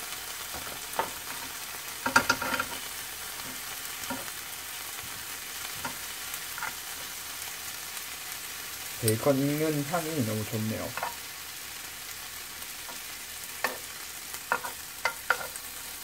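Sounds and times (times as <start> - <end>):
meat sizzling in a frying pan: 0.0 - 16.0
tongs clicking against pan: 14.5 - 15.7.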